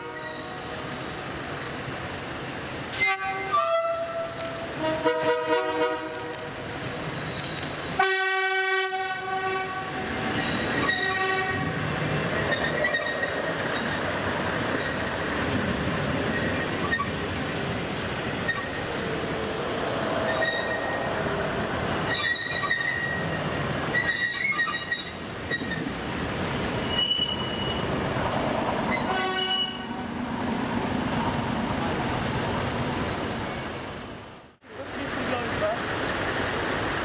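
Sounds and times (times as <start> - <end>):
train running noise: 0.0 - 37.0
train horn blast: 3.0 - 6.3, 8.0 - 10.0, 10.9 - 11.8, 29.0 - 30.0
wheel squeal: 10.3 - 11.2, 12.4 - 14.0, 18.4 - 18.9, 20.2 - 21.2, 22.0 - 25.9, 26.8 - 27.9.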